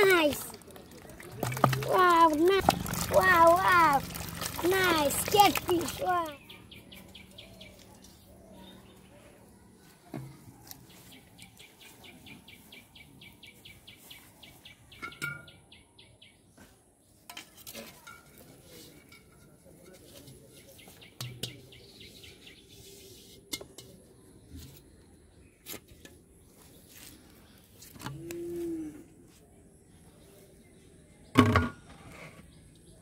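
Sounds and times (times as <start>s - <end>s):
pots and bottle set down: 1.2s - 6.0s, 31.3s - 32.1s.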